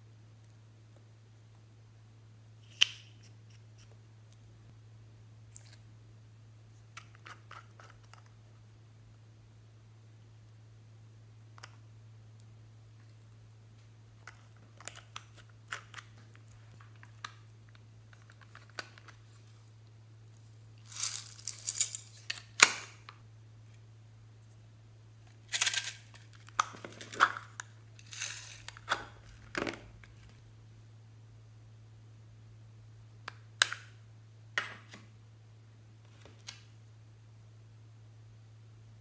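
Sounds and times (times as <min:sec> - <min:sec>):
low electrical hum: 0:00.0 - 0:39.0
plastic confetti rattling: 0:20.8 - 0:22.3, 0:28.0 - 0:28.8.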